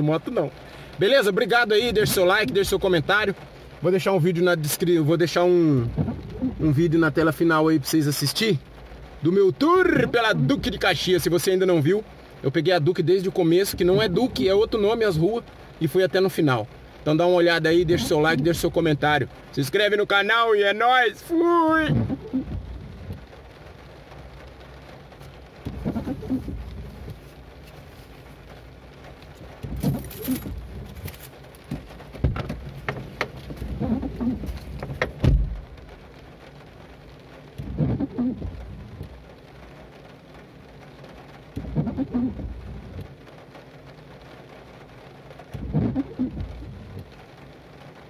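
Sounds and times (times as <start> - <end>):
low steady hum: 0.0 - 20.0, 21.2 - 48.0
rain on a car: 0.0 - 48.0
windshield wiper rubbing glass: 1.0 - 3.8, 4.6 - 11.4, 13.2 - 15.6, 17.4 - 19.4, 21.4 - 40.1, 40.8 - 47.8
pigeon cooing: 25.8 - 26.6, 33.6 - 34.6, 41.8 - 42.4, 45.8 - 46.6.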